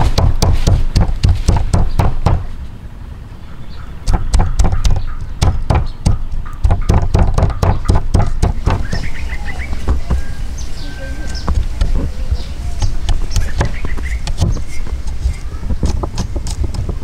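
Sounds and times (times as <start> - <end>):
cleaver chopping on wooden block: 0.0 - 2.5, 4.0 - 9.1, 12.8 - 15.0
birds chirping: 0.0 - 17.0.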